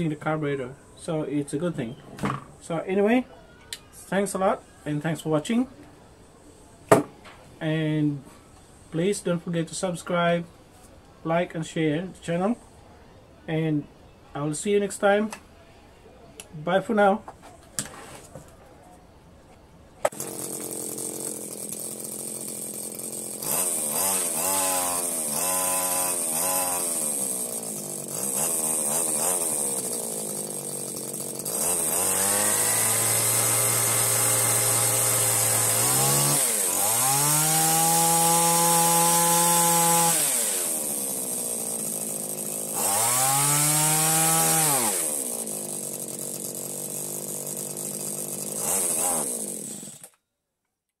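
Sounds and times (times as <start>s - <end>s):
hedge trimmer engine idling and revving: 20.1s - 50.2s.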